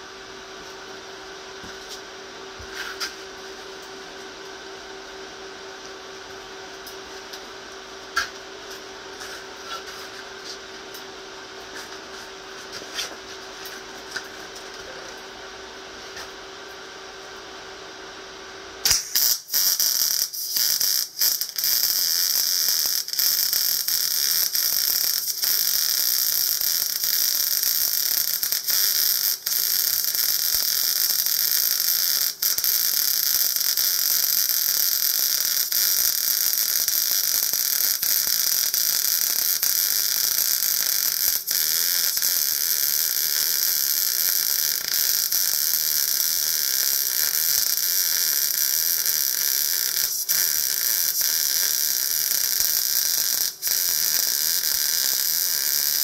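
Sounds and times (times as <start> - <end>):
welding arc hissing: 18.8 - 56.0.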